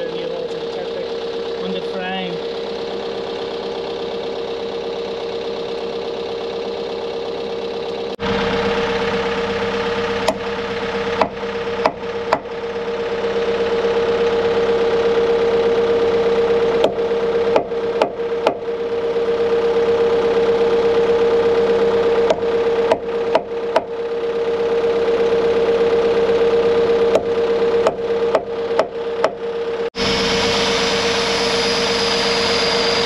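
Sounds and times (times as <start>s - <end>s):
engine running: 0.0s - 33.0s
hammer striking steel punch: 11.2s - 12.5s.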